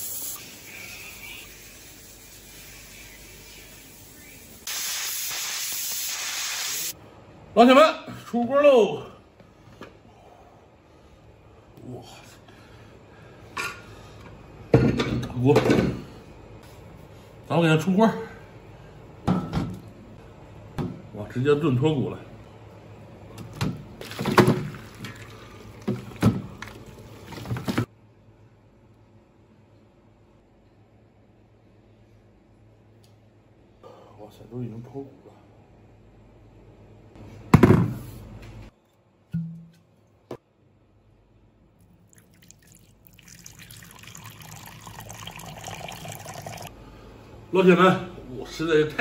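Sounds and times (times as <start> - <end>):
sauce sloshing: 41.9 - 46.7.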